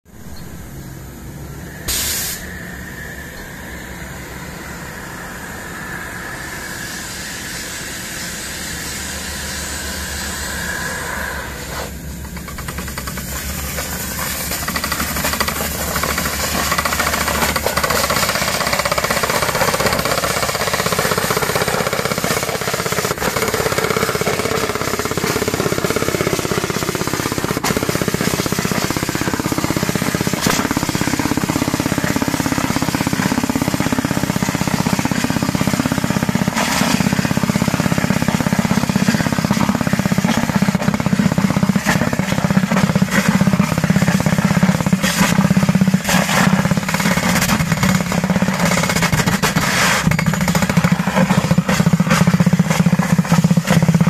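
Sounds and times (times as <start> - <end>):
compressed air hiss: 1.3 - 38.2
percussive drill hammering: 12.3 - 37.8.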